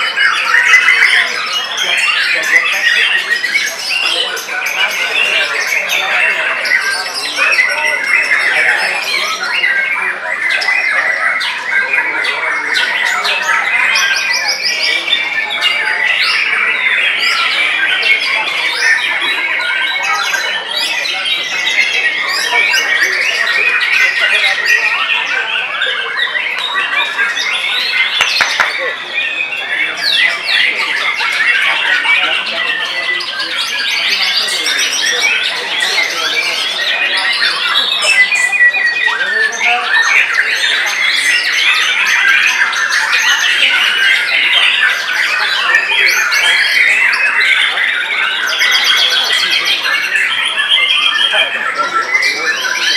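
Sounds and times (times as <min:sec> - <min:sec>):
birds singing in chorus: 0:00.0 - 0:52.9
songbirds whistling and trilling: 0:00.0 - 0:52.9
bird repeated notes: 0:27.4 - 0:29.6.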